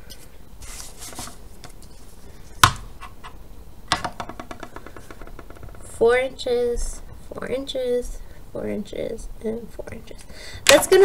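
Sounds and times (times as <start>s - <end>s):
paper strips rustling: 0.6s - 2.3s
ruler knocking on table: 3.9s - 5.4s.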